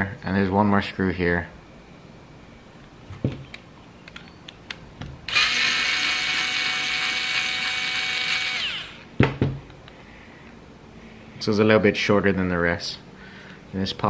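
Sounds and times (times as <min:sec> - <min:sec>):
cordless screwdriver drill whining: 0:05.3 - 0:09.1.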